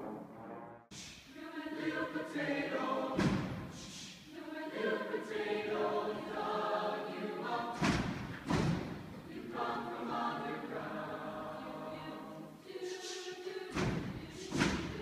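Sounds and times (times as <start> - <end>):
mixed choir singing: 1.0 - 15.0.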